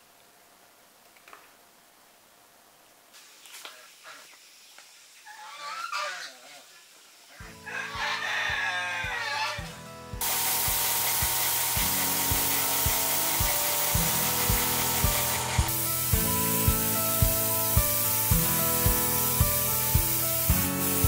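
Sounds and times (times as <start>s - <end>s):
background music with steady beat: 7.4s - 21.0s
spray paint hissing: 10.2s - 21.0s.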